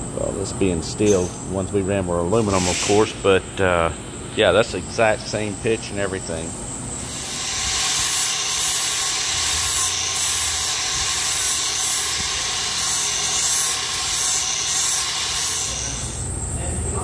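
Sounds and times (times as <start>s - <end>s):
grinder disc rasping on metal: 7.0s - 16.3s
grinder motor whine: 7.0s - 16.3s.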